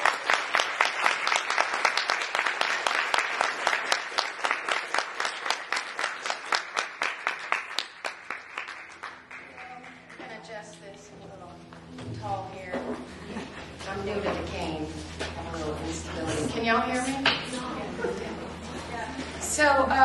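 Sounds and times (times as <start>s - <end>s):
audience applauding: 0.0s - 10.2s.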